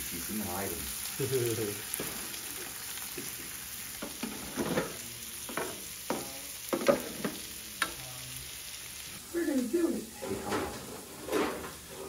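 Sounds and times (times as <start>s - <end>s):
food sizzling on a griddle: 0.0s - 12.0s
tongs scraping and tapping griddle: 2.0s - 2.2s, 4.0s - 8.0s.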